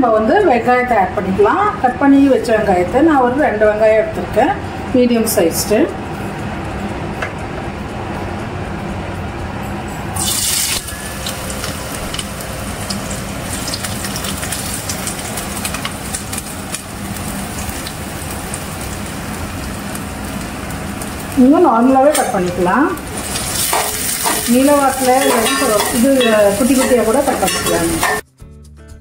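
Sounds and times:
onions sizzling and crackling in oil: 0:10.2 - 0:28.2.

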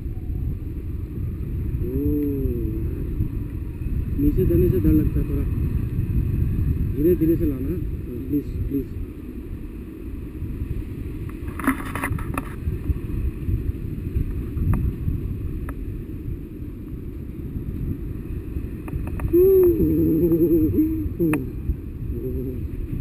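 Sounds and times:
wind buffeting microphone: 0:00.0 - 0:23.0
person's voice: 0:01.8 - 0:03.1, 0:19.3 - 0:22.7
brief rustle: 0:11.4 - 0:12.6.

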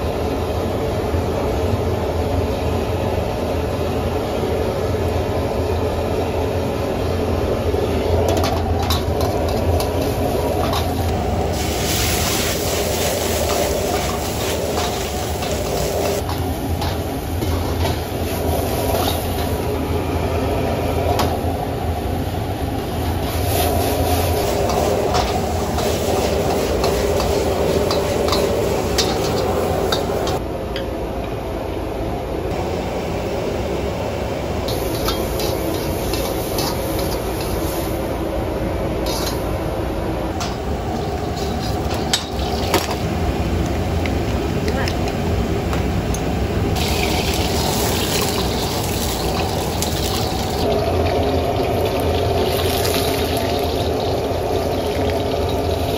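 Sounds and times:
gas burner roaring: 0:00.0 - 0:55.9
stir-fry sizzling: 0:07.6 - 0:30.4, 0:32.5 - 0:44.5, 0:46.8 - 0:55.9
metal ladle scraping a wok: 0:39.0 - 0:39.4, 0:41.0 - 0:42.6.

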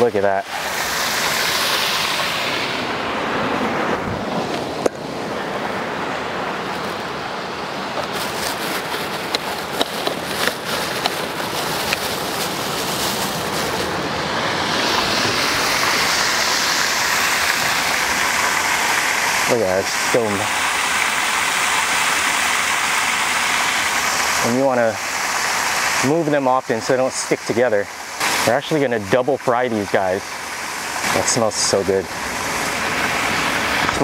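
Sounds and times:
oil popping and crackling: 0:08.0 - 0:13.9.

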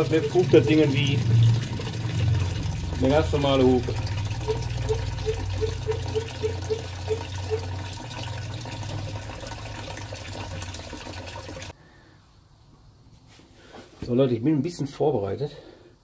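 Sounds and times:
coolant gushing from hose: 0:00.0 - 0:11.8.

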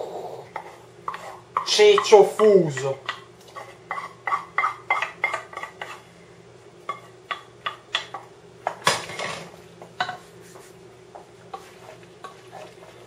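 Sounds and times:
metal spoon scraping a pot: 0:02.8 - 0:06.0.

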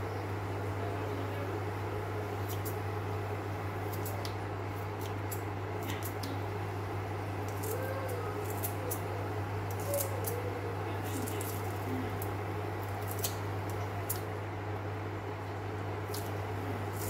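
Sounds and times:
scissors snipping: 0:02.4 - 0:02.8, 0:07.5 - 0:09.1, 0:13.0 - 0:14.2.

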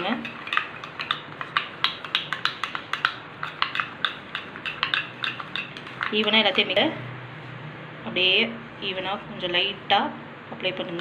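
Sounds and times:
plastic spoon scraping metal bowl: 0:00.0 - 0:06.8.

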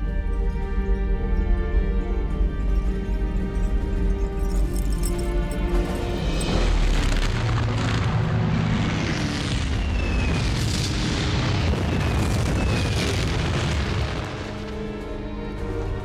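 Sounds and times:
explosions rumbling: 0:06.5 - 0:15.2
falling whistles: 0:09.5 - 0:11.0, 0:11.6 - 0:13.3.

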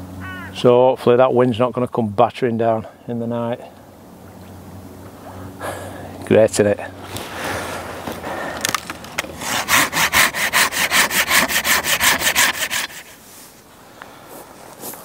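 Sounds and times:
handling noise: 0:07.0 - 0:09.6
hand saw cutting branch: 0:07.0 - 0:13.2.

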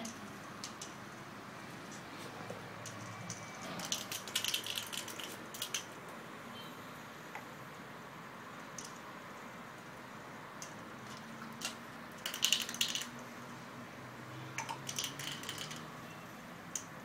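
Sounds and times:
clicking and rattling: 0:02.8 - 0:06.0, 0:11.1 - 0:13.2, 0:14.6 - 0:15.9.

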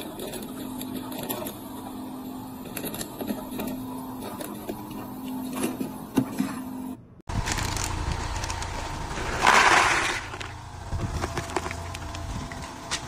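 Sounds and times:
packaging machine humming: 0:00.0 - 0:13.0
foil pouch crinkling: 0:07.3 - 0:08.8.

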